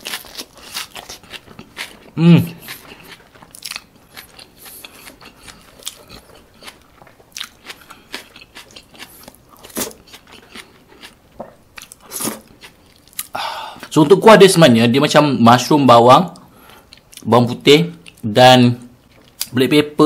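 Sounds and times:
person chewing with mouth smacks: 0:00.0 - 0:13.9, 0:16.4 - 0:17.3.

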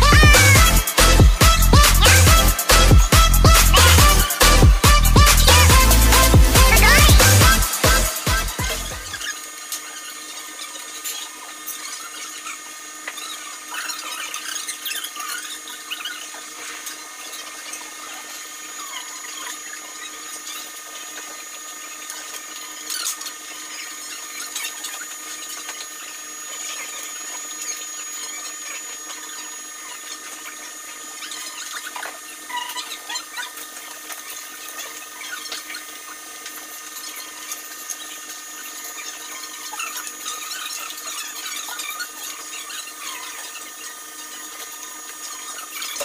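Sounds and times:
music: 0:00.0 - 0:09.2
machine hum with high whine: 0:00.0 - 0:46.0.

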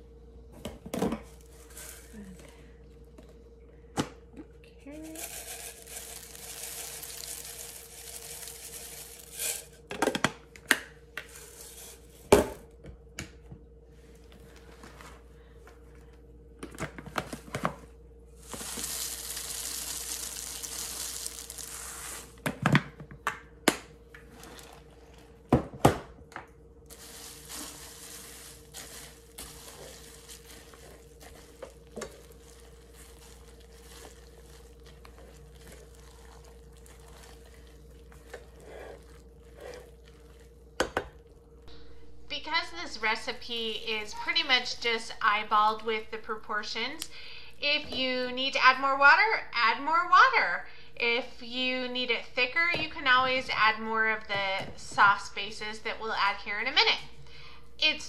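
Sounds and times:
faint hum: 0:00.0 - 0:58.0
dried vegetables rattling into pan: 0:05.0 - 0:09.8, 0:18.4 - 0:22.3, 0:26.9 - 0:36.0.

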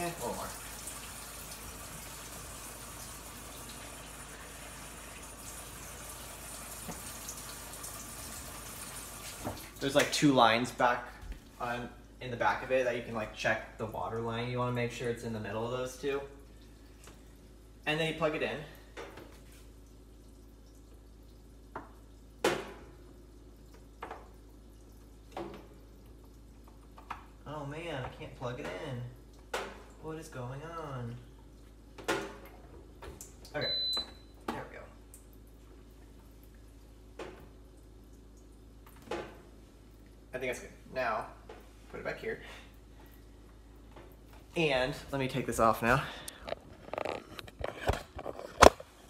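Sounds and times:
water running from a tap: 0:00.0 - 0:10.1.

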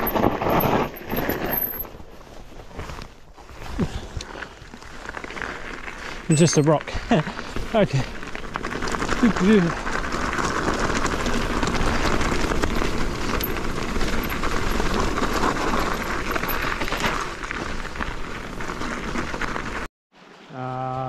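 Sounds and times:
bike rattling: 0:00.0 - 0:19.9.

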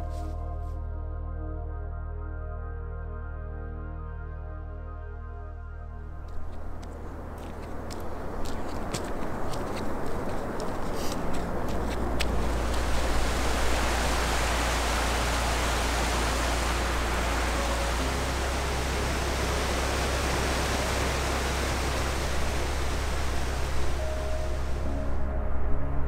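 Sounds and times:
stream rushing over rocks: 0:07.1 - 0:24.9.

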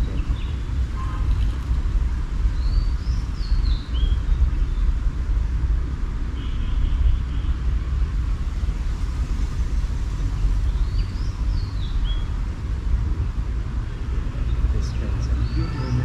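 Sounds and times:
steady low rumble: 0:00.0 - 0:16.0
bird chirping: 0:10.4 - 0:12.4, 0:14.5 - 0:16.0.

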